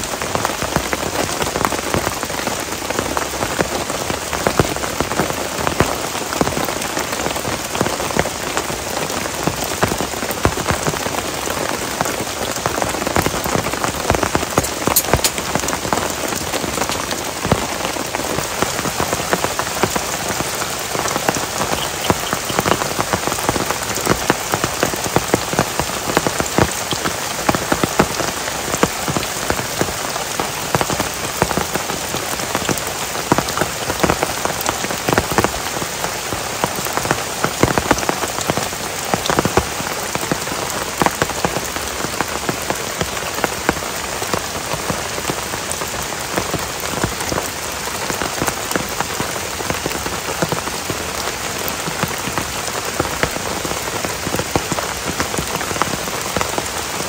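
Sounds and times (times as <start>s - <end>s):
sharp raindrop hits: 0.0s - 44.6s
heavy rain falling: 0.0s - 57.0s.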